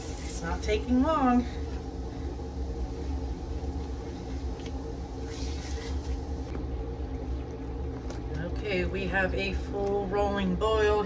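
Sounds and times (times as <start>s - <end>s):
range hood fan humming: 0.0s - 11.0s.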